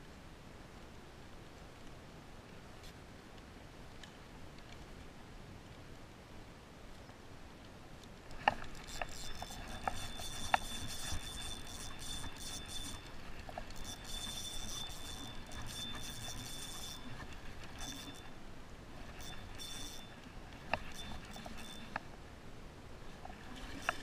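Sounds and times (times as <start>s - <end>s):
fishing reel whirring: 8.3s - 22.0s, 23.4s - 24.0s.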